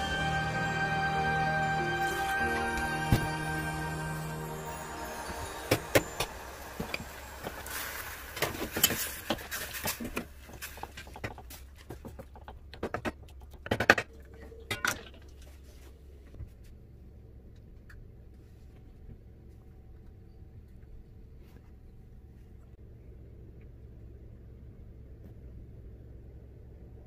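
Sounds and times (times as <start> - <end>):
rustling of vegetables stirred: 6.5 - 11.8.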